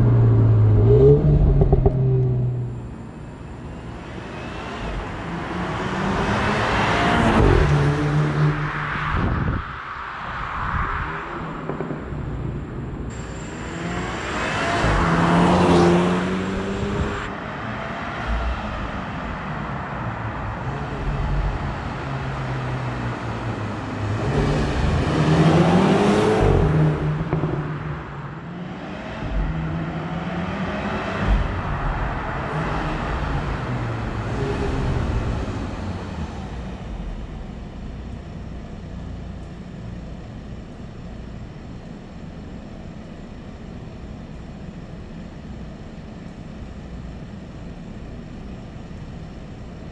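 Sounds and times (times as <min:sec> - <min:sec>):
car engine accelerating hard: 0:00.0 - 0:41.1.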